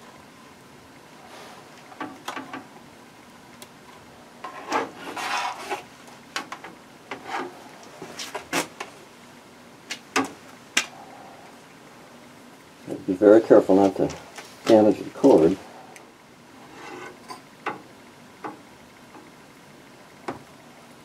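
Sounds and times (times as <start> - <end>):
plastic scraping and rubbing: 4.4 - 9.0.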